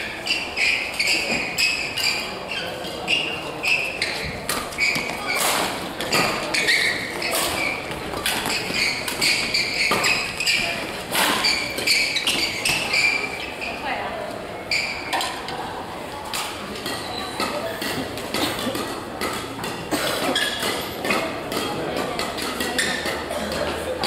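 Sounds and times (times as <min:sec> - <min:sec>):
shoes squeaking on floor: 0:00.0 - 0:14.0, 0:14.6 - 0:15.3, 0:16.8 - 0:23.8
racket hitting shuttlecock: 0:04.1 - 0:13.2, 0:16.4 - 0:23.7.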